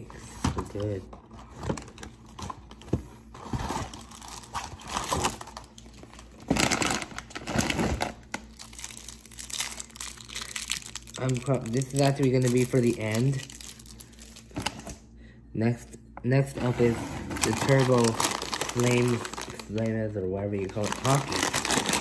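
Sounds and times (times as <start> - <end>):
packaging tearing: 3.4 - 15.0, 17.2 - 20.0, 20.6 - 22.0
snack packaging crinkling: 3.4 - 15.0, 17.2 - 22.0.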